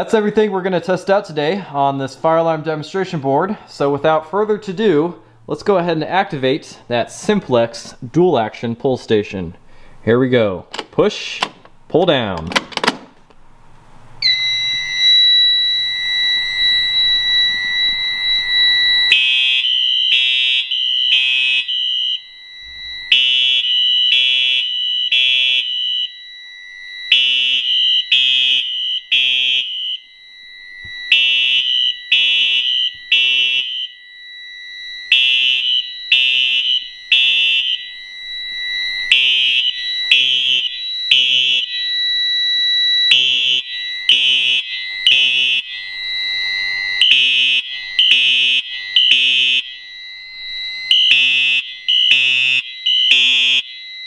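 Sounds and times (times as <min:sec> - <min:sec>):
fire alarm horn blasts: 0:14.2 - 0:54.0
high electronic alarm tone: 0:14.2 - 0:54.0.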